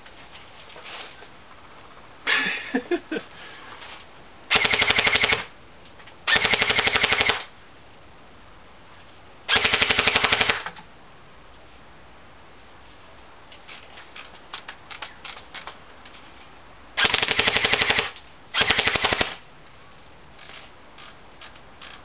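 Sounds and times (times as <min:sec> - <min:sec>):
airsoft rifle full-auto bursts: 0:04.5 - 0:05.5, 0:06.3 - 0:07.5, 0:09.5 - 0:10.7, 0:17.0 - 0:19.4.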